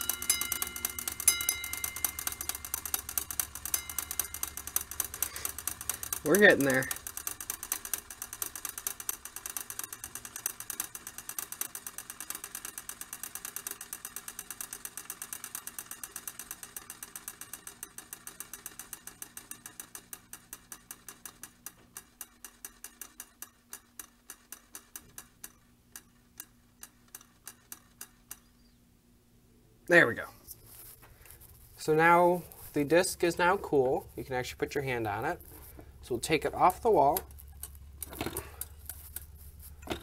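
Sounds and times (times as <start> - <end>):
mechanical alarm bell ringing: 0.0 - 20.1.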